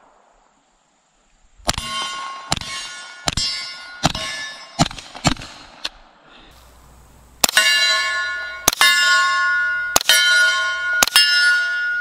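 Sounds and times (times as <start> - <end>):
suppressed gunshots: 1.6 - 6.0, 6.6 - 7.7.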